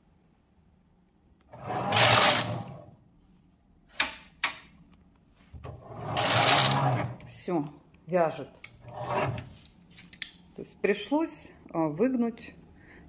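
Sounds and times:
knitting machine carriage rattle: 0:01.8 - 0:02.7, 0:06.1 - 0:07.0.

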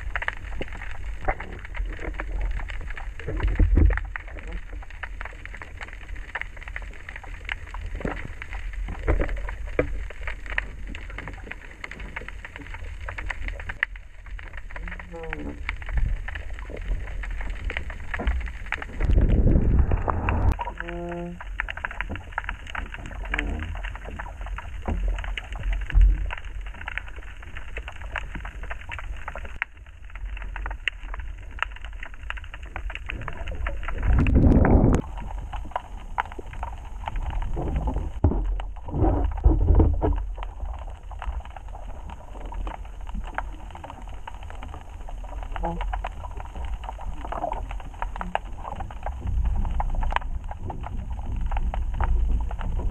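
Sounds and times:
low whooshing water surges: 0:00.0 - 0:28.4, 0:32.6 - 0:52.9
underwater clicks and crackles: 0:00.0 - 0:52.9
underwater rumble: 0:00.0 - 0:52.9
brief hum: 0:19.4 - 0:21.2.

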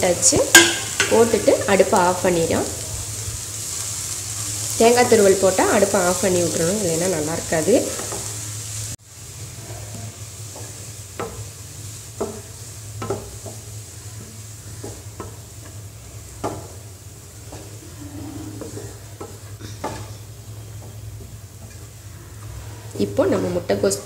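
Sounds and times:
faint sizzle: 0:00.0 - 0:24.0
wooden spatula scraping pan: 0:17.4 - 0:23.8.

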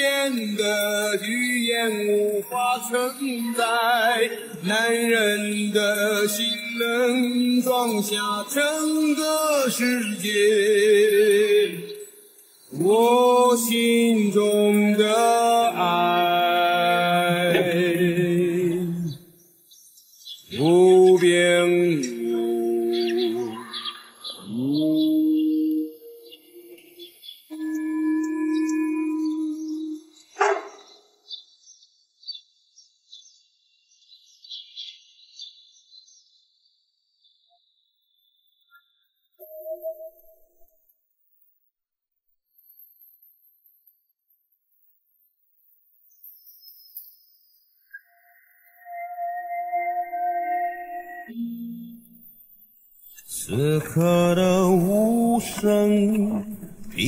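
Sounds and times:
person singing with vibrato: 0:00.0 - 0:19.3, 0:20.5 - 0:30.3, 0:48.8 - 0:52.2, 0:53.3 - 0:57.0
faint bird chirps: 0:00.0 - 0:40.8, 0:45.0 - 0:57.0
held tone: 0:24.5 - 0:30.1, 0:39.4 - 0:40.6, 0:48.7 - 0:52.2
dog barking: 0:30.4 - 0:30.9.

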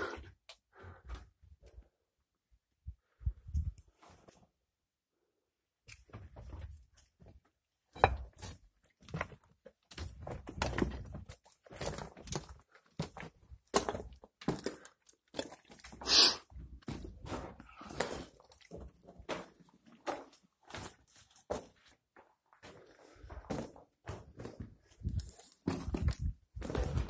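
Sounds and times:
footsteps on rocky cave floor: 0:08.0 - 0:27.0.

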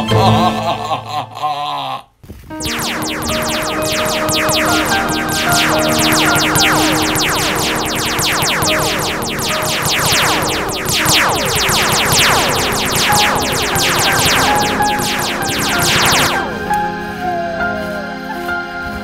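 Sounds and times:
laser zap sound effects: 0:02.5 - 0:17.0
held synthesizer tones: 0:02.5 - 0:17.4.

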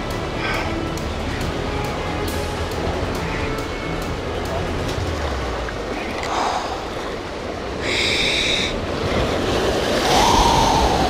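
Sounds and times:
surf washing against rocks: 0:03.2 - 0:11.0
wind on microphone: 0:07.7 - 0:11.0.

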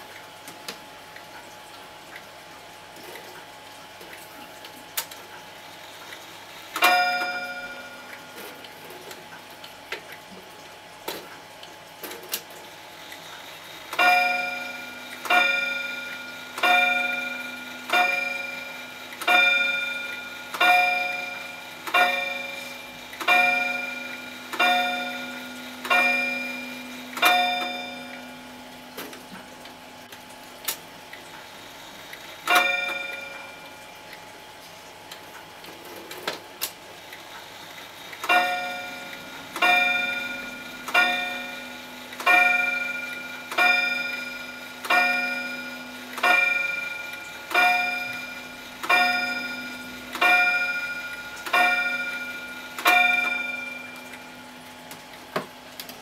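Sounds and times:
pendulum clock clicks: 0:06.7 - 0:08.5, 0:13.9 - 0:28.3, 0:32.1 - 0:33.5, 0:38.2 - 0:54.2
wall clock striking: 0:06.8 - 0:08.2, 0:14.0 - 0:28.6, 0:32.5 - 0:33.7, 0:38.3 - 0:54.4.

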